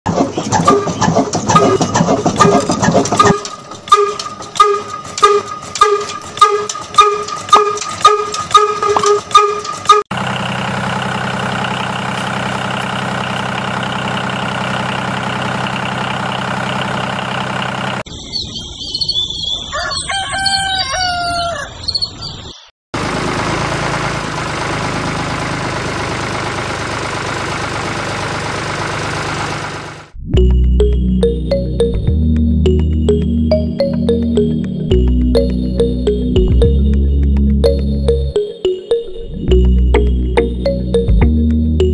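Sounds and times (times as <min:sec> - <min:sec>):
small engine chugging: 0:00.1 - 0:18.0
rooster crowing: 0:19.6 - 0:21.9.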